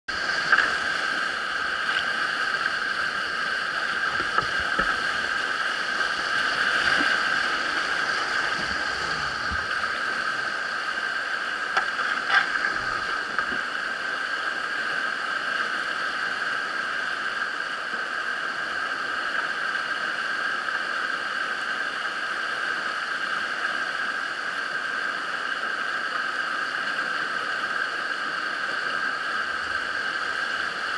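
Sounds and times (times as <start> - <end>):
whitewater rapids rushing: 0.1 - 14.0.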